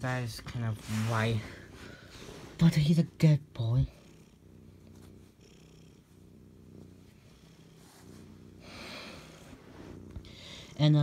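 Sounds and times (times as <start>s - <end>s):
soft rustle: 0.0s - 3.2s, 4.6s - 5.4s, 6.0s - 10.4s
cat purring: 0.0s - 11.0s.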